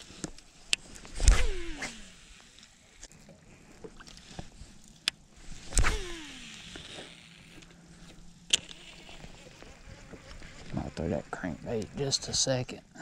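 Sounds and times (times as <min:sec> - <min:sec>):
reel spool whirring: 0:00.7 - 0:03.1, 0:05.3 - 0:12.6
fishing rod swish: 0:01.1 - 0:02.2, 0:05.5 - 0:07.2.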